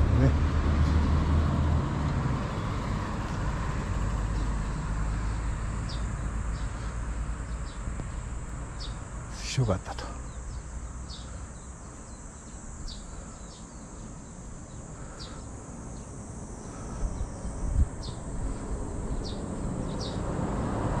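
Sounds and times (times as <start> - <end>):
high insect drone: 0.0 - 21.0
short insect chirps: 4.4 - 20.3.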